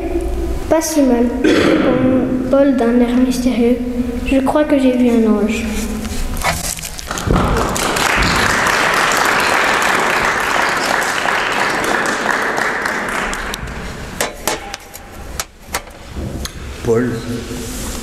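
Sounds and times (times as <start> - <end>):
congregation applauding: 7.0 - 14.2
sharp knocks: 13.6 - 16.5.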